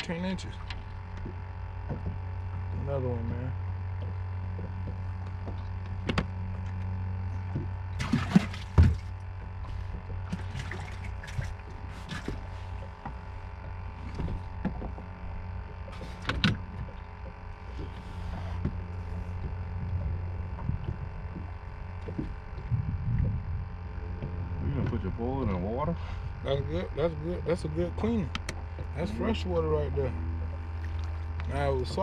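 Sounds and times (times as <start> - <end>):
knocks and clatter on boat deck: 0.0 - 26.5
steady low hum: 0.0 - 32.0.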